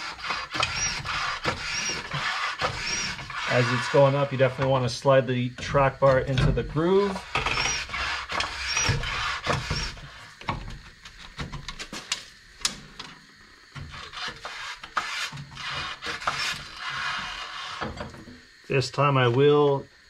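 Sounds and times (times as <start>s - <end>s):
short high squeaks: 0.0s - 4.2s, 7.0s - 10.1s
metal parts knocking and scraping: 0.2s - 4.9s, 5.6s - 12.2s.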